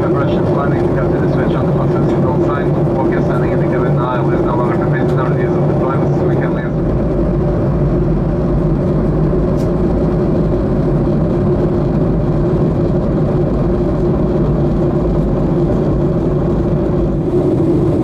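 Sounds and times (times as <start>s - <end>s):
jet engines humming: 0.0s - 18.0s
air rushing past fuselage: 14.6s - 18.0s.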